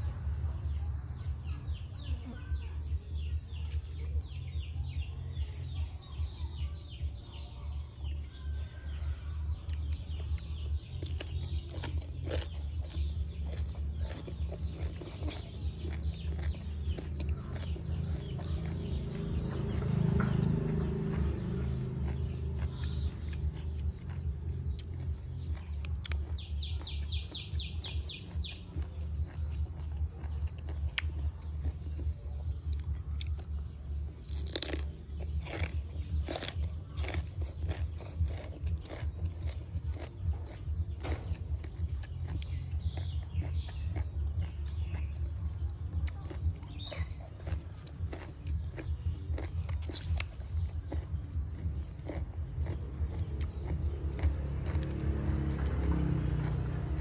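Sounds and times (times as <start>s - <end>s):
bird chirping: 0.5s - 57.0s.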